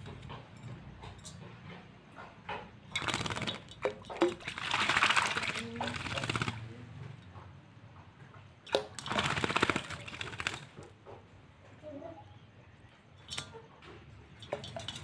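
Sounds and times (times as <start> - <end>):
bird wings splashing water: 2.9 - 6.8, 8.7 - 10.9, 14.4 - 15.0.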